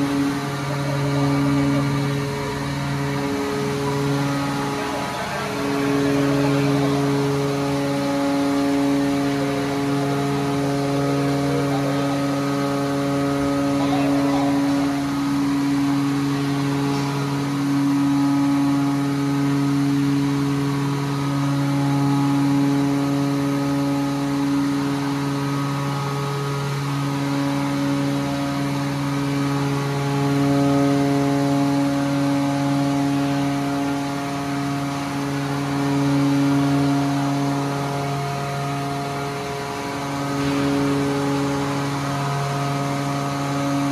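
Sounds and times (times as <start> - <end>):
hydraulic steering pump hum: 0.0 - 43.9.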